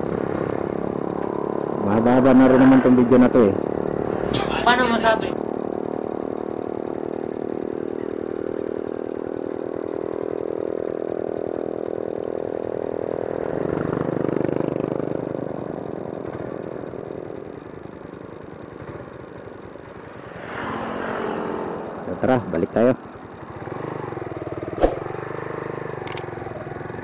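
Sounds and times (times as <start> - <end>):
motorcycle engine running: 0.0 - 20.5.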